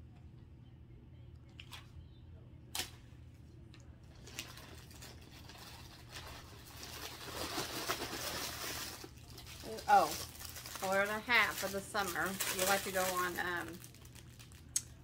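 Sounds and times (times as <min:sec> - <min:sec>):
faint low hum: 0:00.0 - 0:15.0
plastic packaging crinkling: 0:04.1 - 0:15.0.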